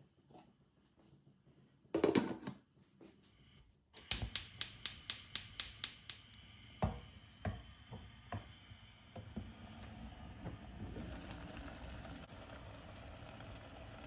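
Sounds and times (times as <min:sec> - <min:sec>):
gas burner hiss: 0:03.4 - 0:11.5
gas igniter clicking: 0:04.0 - 0:06.5.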